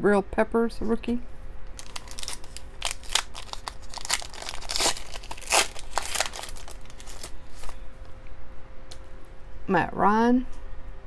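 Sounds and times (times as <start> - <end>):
plastic wrapper crinkling and tearing: 1.7 - 7.8.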